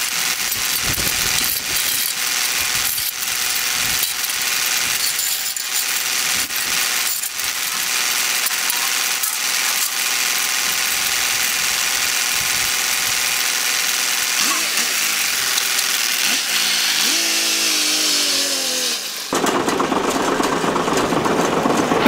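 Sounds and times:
hand tools clicking on metal: 0.0s - 17.4s.

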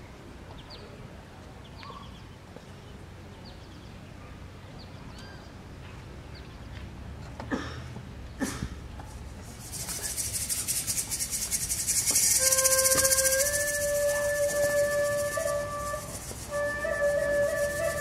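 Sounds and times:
high shimmering rattle: 9.5s - 18.0s.

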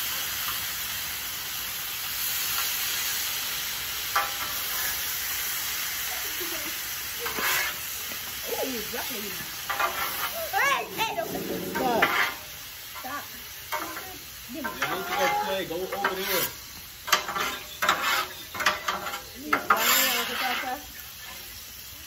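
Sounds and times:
vegetables sizzling in a pan: 0.0s - 22.0s
utensil stirring and scraping: 7.2s - 7.8s, 9.7s - 12.5s, 14.6s - 21.0s.

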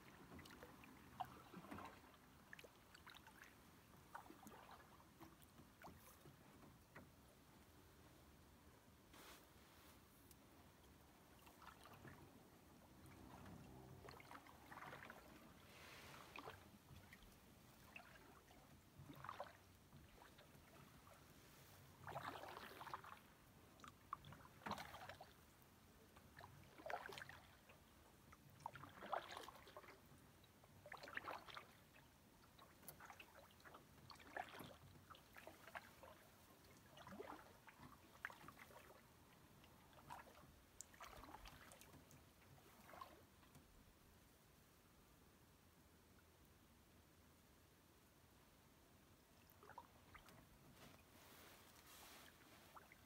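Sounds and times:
paddle strokes in water: 0.0s - 44.2s, 49.4s - 53.0s.

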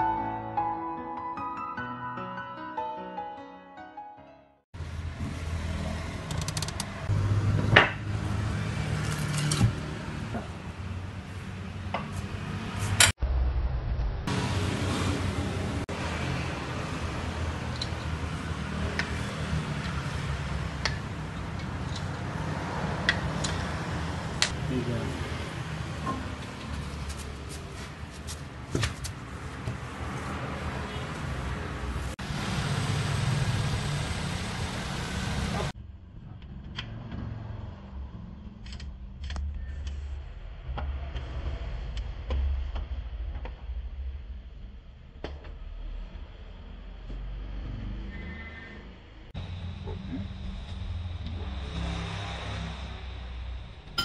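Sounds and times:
wheel nuts clicking: 6.2s - 7.0s.

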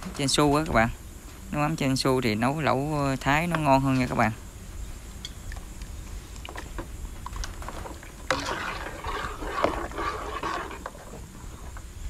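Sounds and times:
steady low hum: 0.0s - 12.0s
ladle stirring broth in metal pot: 7.4s - 11.8s.

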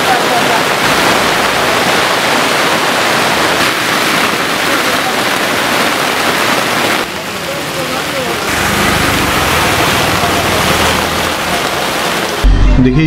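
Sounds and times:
torrential rain pouring: 0.0s - 12.8s.

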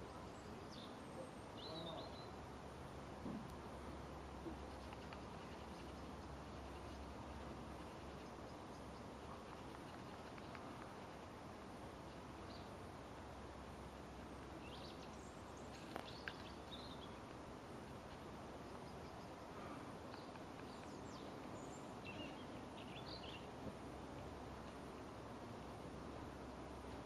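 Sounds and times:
distant bird chirps: 0.0s - 2.4s, 14.3s - 23.7s
outdoor background hiss: 0.0s - 27.0s.

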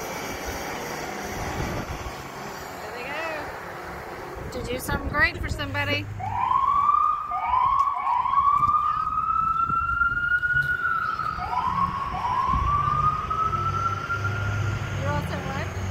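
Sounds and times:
siren wailing: 6.1s - 15.9s.

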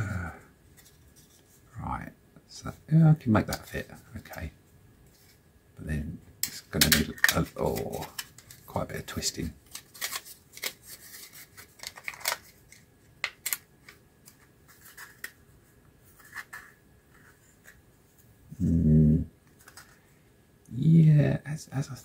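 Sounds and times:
person humming: 18.5s - 19.3s.

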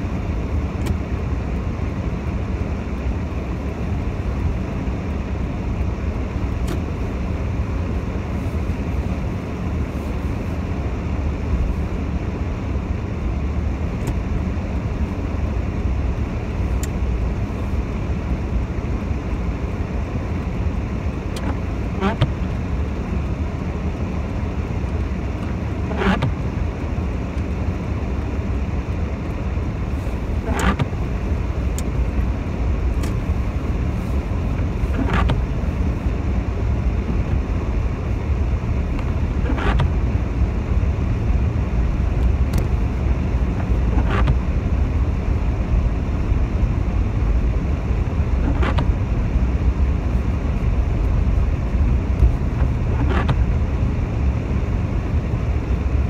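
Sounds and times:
car engine and road rumble: 0.0s - 56.0s
tyres on wet road: 0.0s - 56.0s.

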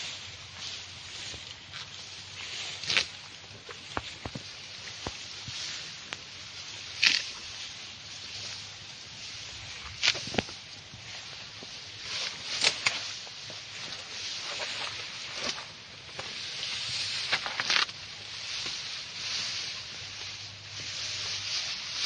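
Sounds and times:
rustling: 0.0s - 22.0s
sharp snaps and cracks: 2.8s - 3.2s, 7.0s - 7.4s, 9.9s - 10.6s, 12.1s - 13.1s.

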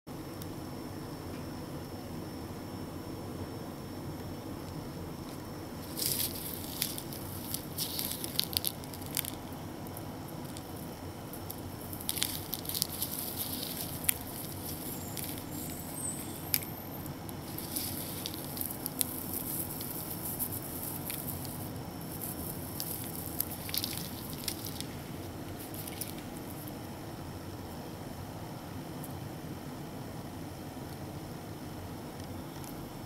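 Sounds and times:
steady background hiss: 0.1s - 33.0s
dried stems crackling: 5.2s - 26.9s.

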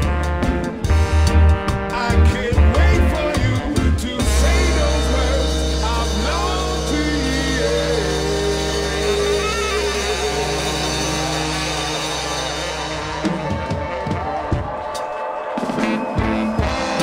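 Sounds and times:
reggae band playing live: 0.0s - 17.0s
people singing: 2.1s - 12.8s.

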